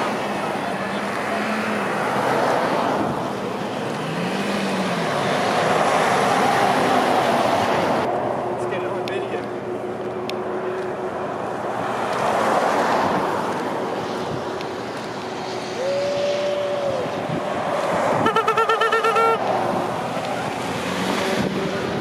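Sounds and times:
highway traffic: 0.0s - 22.0s
wind: 0.0s - 22.0s
held tone: 18.2s - 19.4s.

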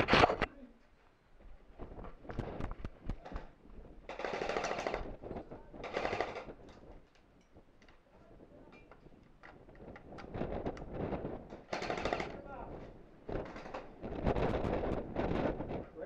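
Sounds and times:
airsoft rifle full-auto bursts: 4.1s - 5.0s, 5.8s - 6.5s, 11.7s - 12.4s.

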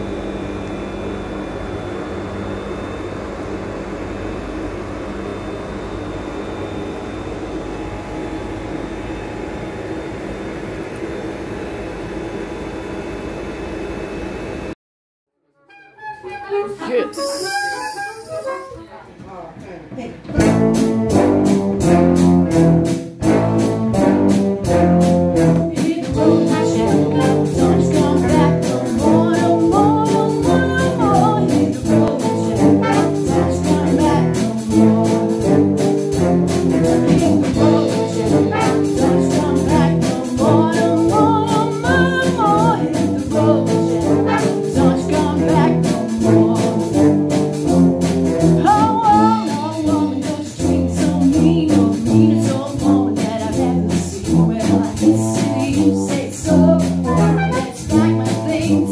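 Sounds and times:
brass band playing: 15.6s - 19.1s, 20.3s - 58.9s
steady drum beat: 18.9s - 58.9s
woman singing into microphone: 25.7s - 34.5s, 37.4s - 47.0s, 48.6s - 58.9s.

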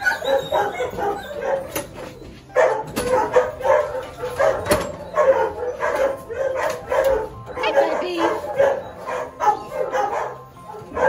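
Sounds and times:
dogs barking: 0.0s - 11.0s.

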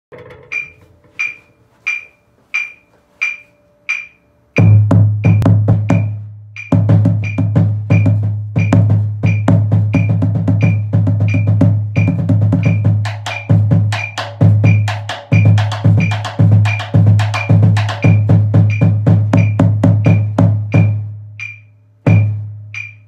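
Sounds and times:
metronome clicking: 0.3s - 23.0s
bass drum struck with mallet: 4.6s - 23.0s.

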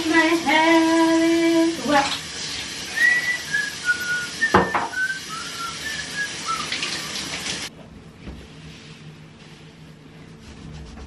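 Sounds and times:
shower water running: 0.0s - 7.7s
woman whistling a tune: 3.0s - 6.8s.

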